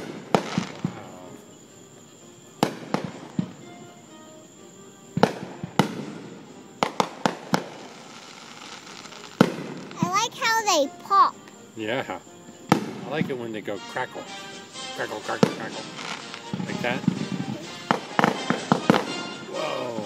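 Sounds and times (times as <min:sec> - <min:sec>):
fireworks bangs: 0:00.0 - 0:01.3, 0:02.6 - 0:03.8, 0:05.2 - 0:10.8, 0:12.7 - 0:13.4, 0:14.6 - 0:20.0.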